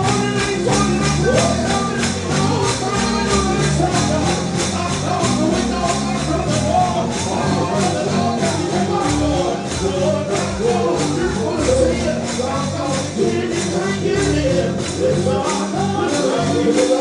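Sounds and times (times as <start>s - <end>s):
person singing: 0.0s - 17.0s
tambourine strikes: 0.0s - 17.0s
upbeat gospel music: 0.0s - 17.0s.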